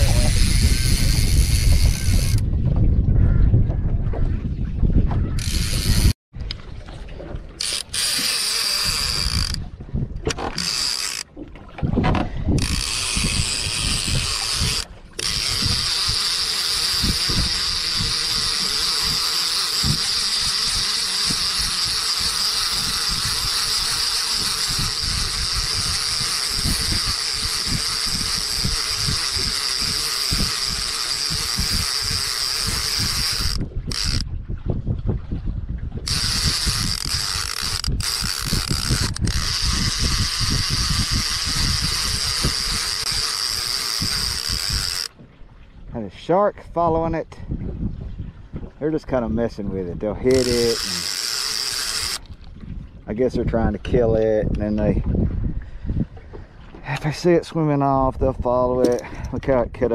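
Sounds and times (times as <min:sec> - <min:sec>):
fishing reel gears whirring: 0:00.0 - 0:02.4, 0:05.2 - 0:06.2, 0:07.6 - 0:11.3, 0:12.6 - 0:34.3, 0:36.0 - 0:45.1, 0:50.2 - 0:52.6.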